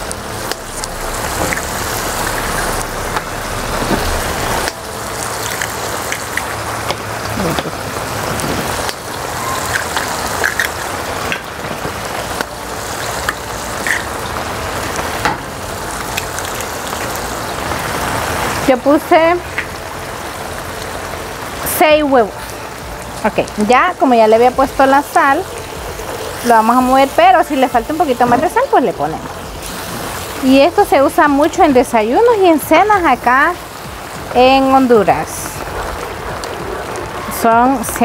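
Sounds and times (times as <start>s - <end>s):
eggs sizzling in a pan: 0.0s - 38.0s
eggs cracking: 4.7s - 7.7s, 8.8s - 11.5s, 13.2s - 14.3s.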